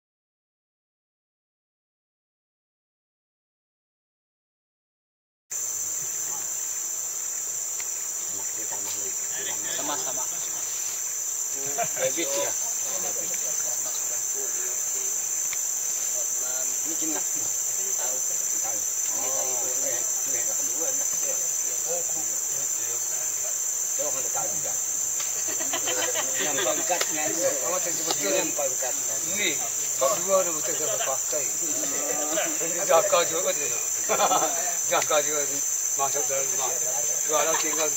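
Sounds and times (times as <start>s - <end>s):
insects droning: 5.5s - 37.9s
people talking indistinctly: 8.2s - 37.9s.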